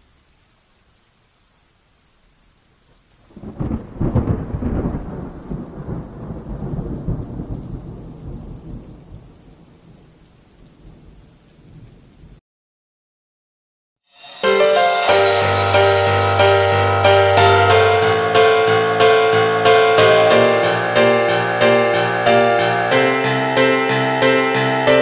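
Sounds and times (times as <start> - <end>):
rain hissing: 0.0 - 12.4, 14.1 - 25.0
thunder rumbling: 3.3 - 12.4.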